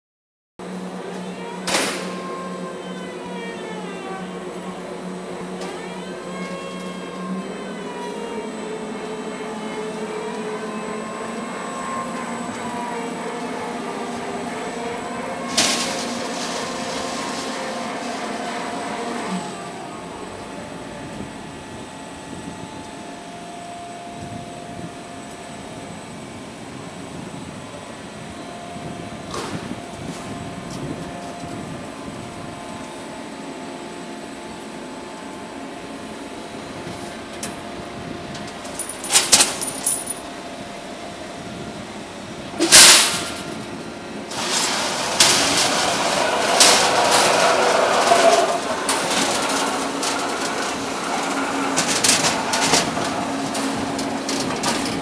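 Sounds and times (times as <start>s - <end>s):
machinery clatter and knocks: 44.3s - 55.0s.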